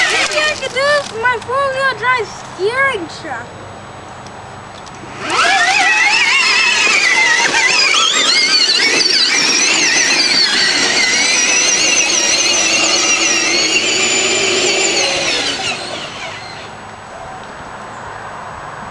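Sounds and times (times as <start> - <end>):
electric motors whining: 0.0 - 1.8, 4.8 - 17.0.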